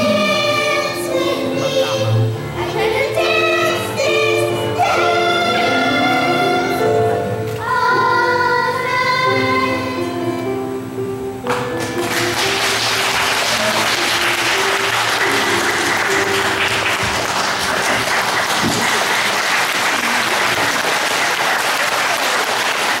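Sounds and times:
held musical notes: 0:00.0 - 0:20.6
audience applauding: 0:11.5 - 0:23.0.

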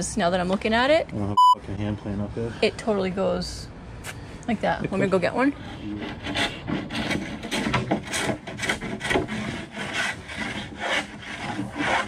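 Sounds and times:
hand tool shaving plywood: 0:05.8 - 0:12.0.

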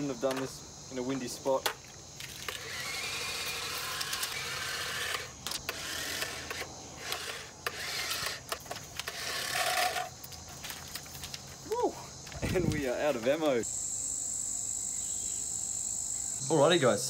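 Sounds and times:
toy money gun motor whirring: 0:02.5 - 0:10.1.

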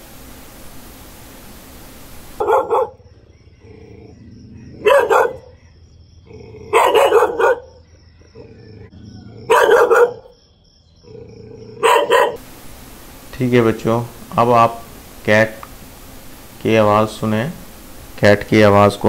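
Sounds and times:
dog barking: 0:02.4 - 0:03.1, 0:04.6 - 0:05.6, 0:06.6 - 0:07.9, 0:09.4 - 0:10.4, 0:11.7 - 0:12.4.

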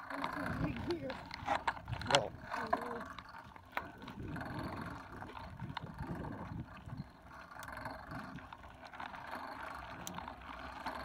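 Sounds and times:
bicycle tyres crunching on gravel: 0:00.0 - 0:11.0
wind on microphone: 0:00.4 - 0:03.2, 0:03.8 - 0:07.4.

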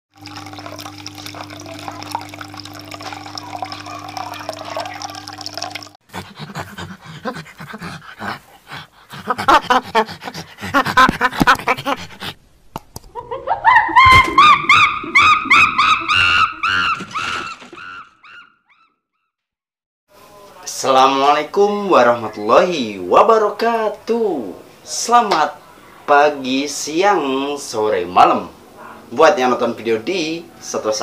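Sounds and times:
steady hum with watery hiss: 0:00.1 - 0:06.0, 0:20.1 - 0:31.0
chimpanzee hoots and pants: 0:06.1 - 0:12.4.

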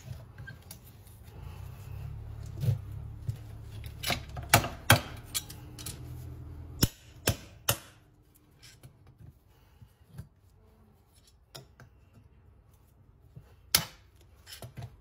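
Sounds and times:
metal tools tapping horse hoof: 0:03.6 - 0:06.2.

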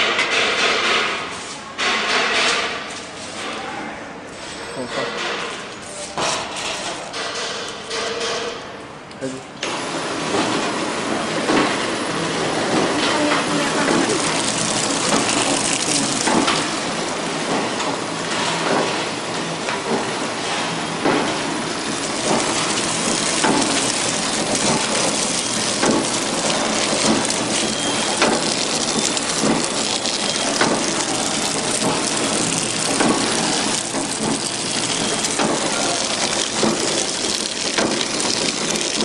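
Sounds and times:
machinery running: 0:09.7 - 0:18.3, 0:19.0 - 0:39.0
machine clicks and knocks: 0:22.2 - 0:27.6, 0:28.2 - 0:39.0.

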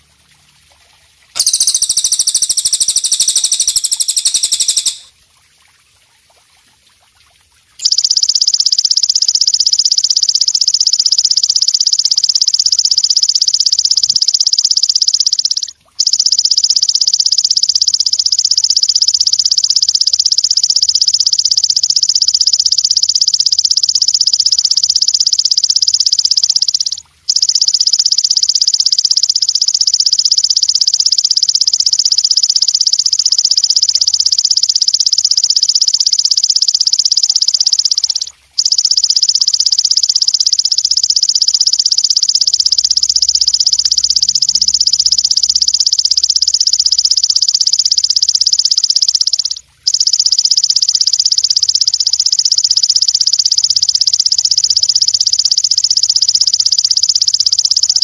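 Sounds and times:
dense high insect trill: 0:01.4 - 0:05.1
katydid buzzing trill: 0:01.4 - 0:05.1, 0:07.8 - 0:58.0.

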